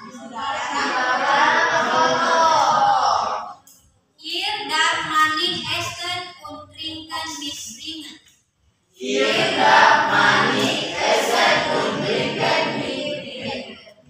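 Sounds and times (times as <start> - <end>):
choir singing: 0.4 - 3.5, 9.0 - 13.9.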